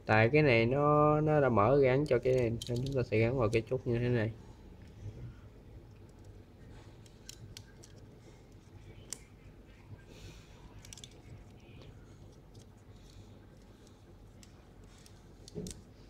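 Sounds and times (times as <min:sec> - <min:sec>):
hard plastic clicking and rubbing: 0:10.8 - 0:15.9.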